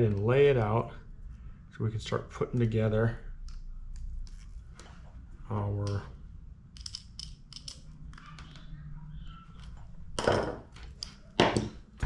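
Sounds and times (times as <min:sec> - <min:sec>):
small metal clicks: 0:06.7 - 0:08.6.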